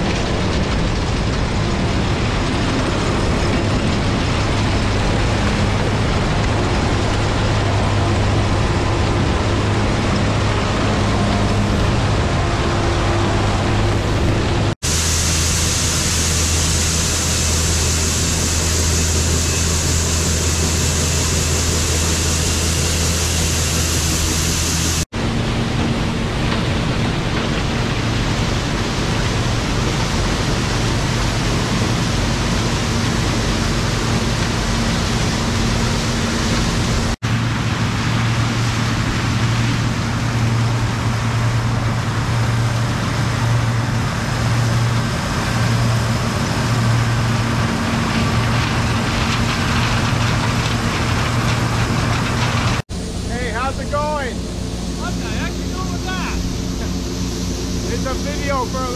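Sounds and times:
combine harvester engine hum: 0:00.0 - 0:58.9
grain pouring hiss: 0:14.8 - 0:25.0, 0:27.0 - 0:58.9.

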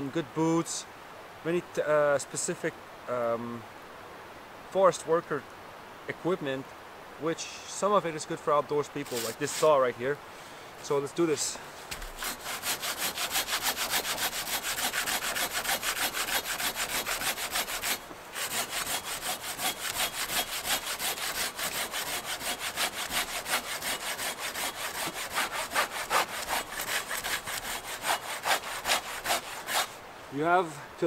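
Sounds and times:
hand saw cutting through log: 0:09.0 - 0:09.8, 0:11.9 - 0:30.0.

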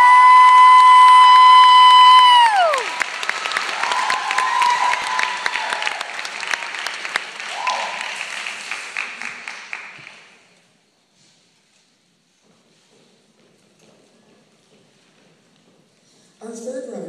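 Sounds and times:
high call from crowd: 0:00.0 - 0:06.8
theatre audience applauding: 0:00.0 - 0:10.5.

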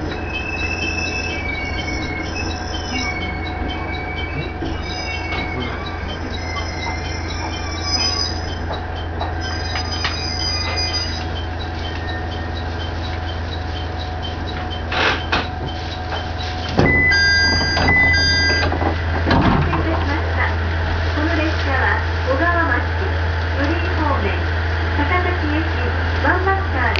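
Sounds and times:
two-tone electronic chime: 0:00.0 - 0:18.7
faint regular ticking: 0:00.0 - 0:19.1
diesel railcar engine idling: 0:00.0 - 0:26.9.

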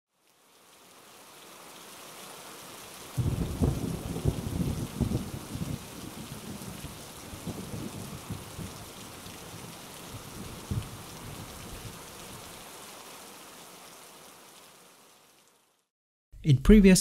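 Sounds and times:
rain falling: 0:00.1 - 0:15.9
rolling thunder: 0:03.2 - 0:12.0.

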